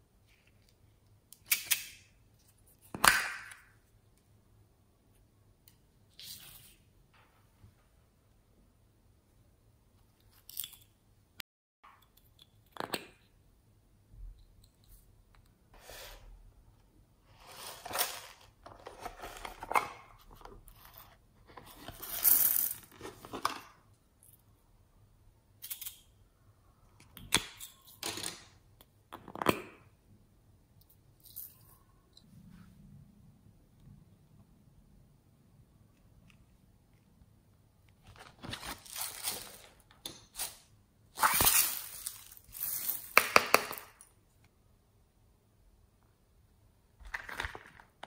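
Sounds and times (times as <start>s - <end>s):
plastic toys crinkling and rustling: 38.0s - 44.0s, 47.0s - 48.0s.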